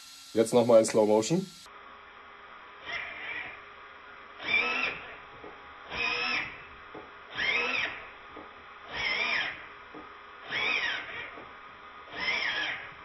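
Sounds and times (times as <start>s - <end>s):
steering servo whining: 0.0s - 1.7s, 4.4s - 5.2s, 5.9s - 6.6s, 7.3s - 8.1s, 8.9s - 9.7s, 10.4s - 11.4s, 12.1s - 13.0s.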